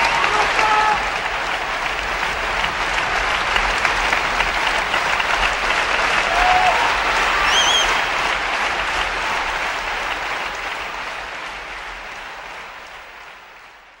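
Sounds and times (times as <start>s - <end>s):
audience applauding: 0.0s - 14.0s
high wavering whistle: 7.4s - 8.0s.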